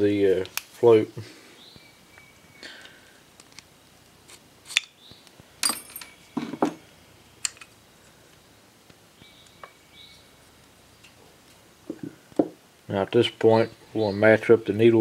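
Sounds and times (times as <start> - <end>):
small metal clicks and taps: 7.4 - 7.7.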